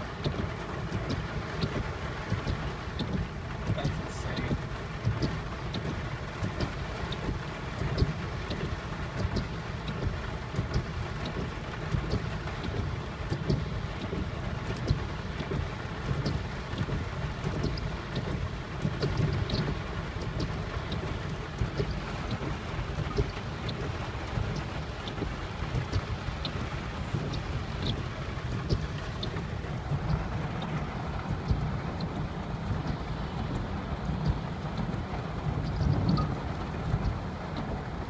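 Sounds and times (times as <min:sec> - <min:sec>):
heavy rain on car roof: 0:00.0 - 0:38.0
raindrop ticks: 0:00.0 - 0:38.0.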